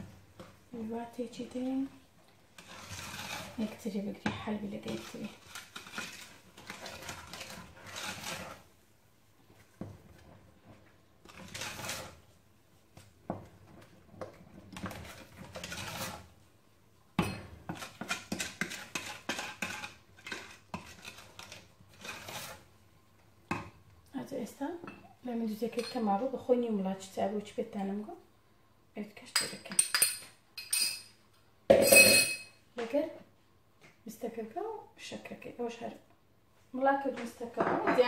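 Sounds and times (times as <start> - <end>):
spoon stirring thick paste: 0.3 - 8.8, 9.4 - 16.6, 17.2 - 23.8.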